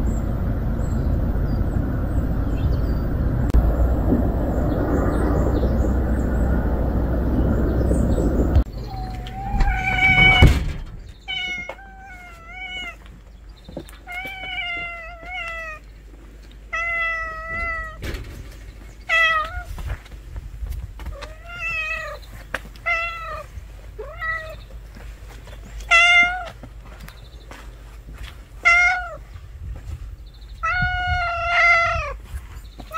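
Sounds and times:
loud low rumble: 0:00.0 - 0:11.3
cat meowing: 0:08.8 - 0:10.6, 0:11.2 - 0:13.0, 0:14.0 - 0:15.8, 0:16.7 - 0:18.0, 0:19.1 - 0:19.8, 0:21.2 - 0:22.2, 0:22.8 - 0:24.6, 0:25.8 - 0:26.6, 0:28.6 - 0:29.2, 0:30.6 - 0:32.2.

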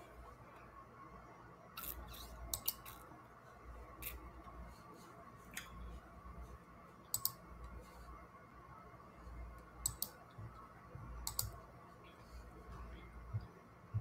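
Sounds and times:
faint low rumble: 0:03.2 - 0:14.0
sharp clicks: 0:07.1 - 0:07.4, 0:09.8 - 0:10.2, 0:11.2 - 0:11.6.

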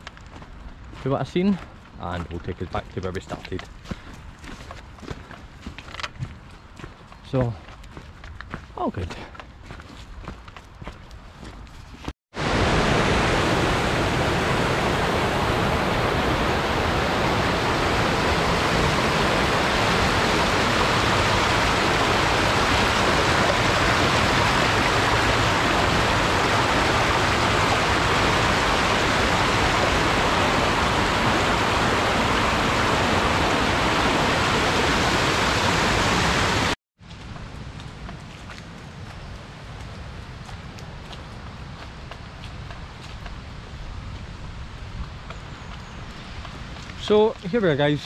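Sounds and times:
stream rushing over boulders: 0:12.4 - 0:36.8.

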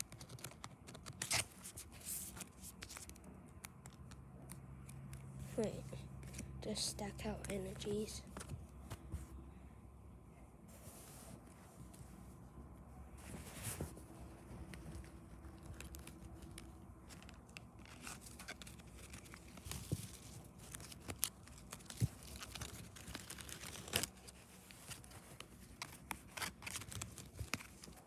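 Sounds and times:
cards flipped by hand: 0:00.0 - 0:05.4, 0:14.6 - 0:28.0.

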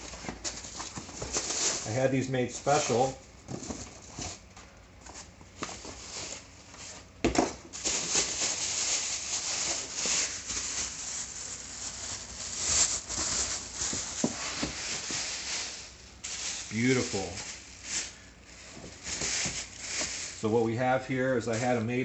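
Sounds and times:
plastic bag crinkling: 0:07.7 - 0:21.8.

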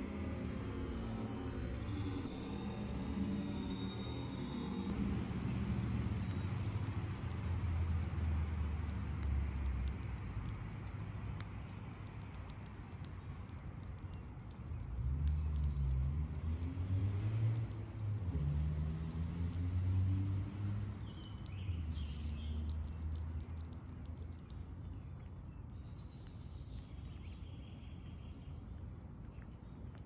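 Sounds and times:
short high chirp: 0:00.0 - 0:05.0
low rumble: 0:00.0 - 0:25.3
chipmunk chewing nuts: 0:00.0 - 0:30.0.

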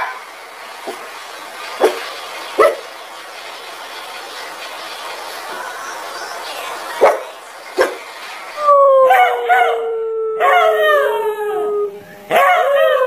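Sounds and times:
dog barking: 0:02.6 - 0:02.9, 0:07.0 - 0:08.0, 0:12.3 - 0:13.0
dog howling: 0:08.6 - 0:13.0.

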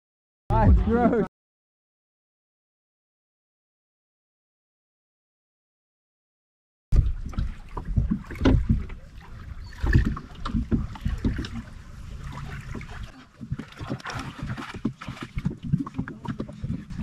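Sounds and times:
waves lapping against boat hull: 0:06.9 - 0:17.0
wind rumble on microphone: 0:06.9 - 0:17.0
knocks and bumps: 0:07.0 - 0:09.0.

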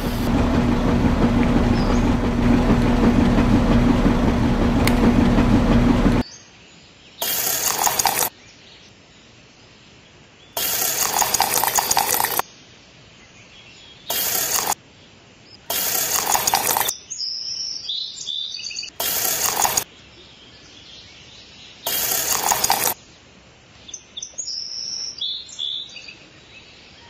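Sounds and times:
noisy sound effect bursts: 0:00.0 - 0:06.2, 0:07.2 - 0:08.3, 0:10.6 - 0:12.4, 0:14.1 - 0:14.8, 0:15.7 - 0:16.9, 0:19.0 - 0:19.8, 0:21.9 - 0:23.0.

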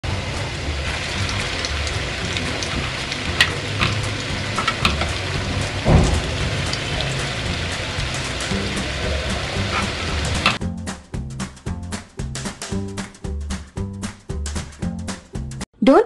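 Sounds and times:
chicken deep-frying in oil: 0:00.0 - 0:10.6
dull thump: 0:05.8 - 0:06.9.

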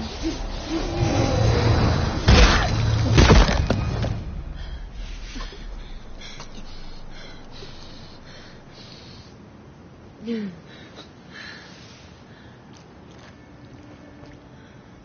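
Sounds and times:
small scattered noises: 0:00.0 - 0:15.0
heavy crunching thuds: 0:00.9 - 0:08.8.

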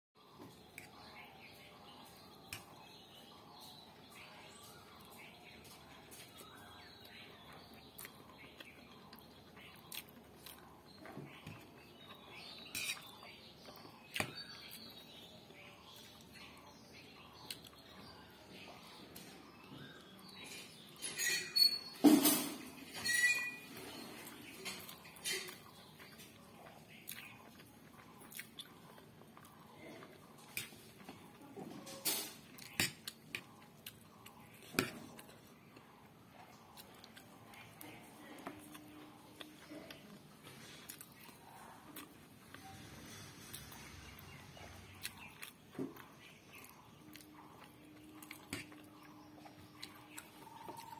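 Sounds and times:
quiet chewing: 0:00.2 - 0:20.9, 0:23.8 - 0:50.9
fork stirring noodles: 0:12.4 - 0:13.4.

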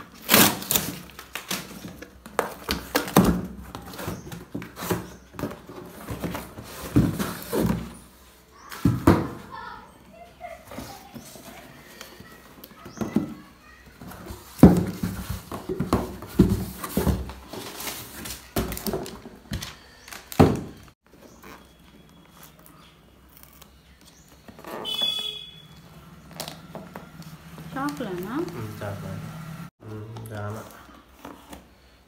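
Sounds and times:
cardboard rustle: 0:00.1 - 0:09.1.

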